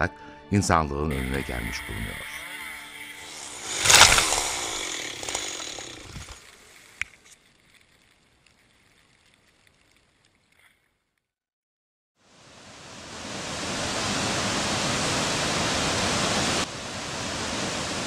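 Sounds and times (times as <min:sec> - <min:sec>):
tree crashing to ground: 0:03.3 - 0:10.4
branches crackling and snow falling: 0:03.3 - 0:11.0
branch snapping: 0:03.5 - 0:10.8.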